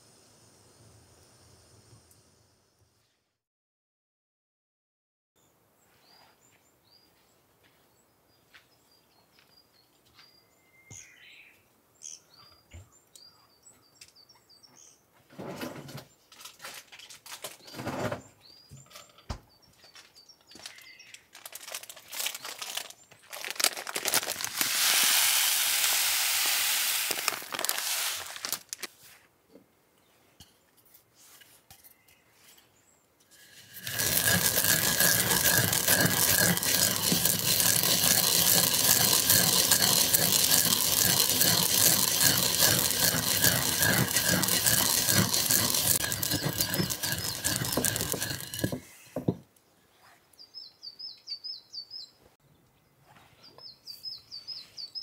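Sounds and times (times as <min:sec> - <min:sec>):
handling noises: 0:21.4 - 0:28.9
seeds poured into ceramic bowl: 0:21.5 - 0:28.9, 0:33.4 - 0:48.9.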